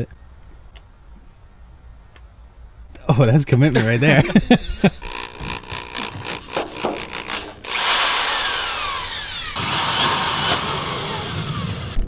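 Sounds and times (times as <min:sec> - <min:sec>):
drill motor whirring: 0:04.8 - 0:12.0.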